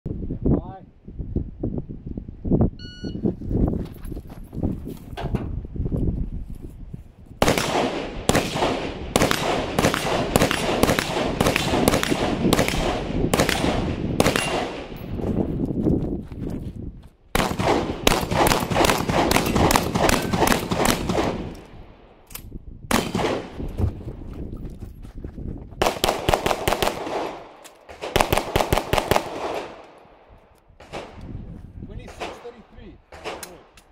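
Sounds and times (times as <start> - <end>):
gunshots with echo: 7.4 - 15.0, 17.4 - 21.5, 25.8 - 29.8, 32.1 - 33.7
shotgun blasts: 7.4 - 15.0, 17.4 - 21.6, 22.9 - 23.6, 25.8 - 29.9, 30.8 - 31.2, 32.1 - 33.8.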